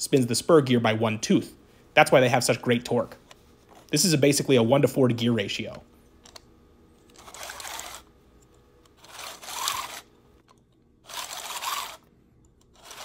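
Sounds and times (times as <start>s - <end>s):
plastic gear teeth rasping: 7.1s - 8.1s, 9.0s - 13.0s.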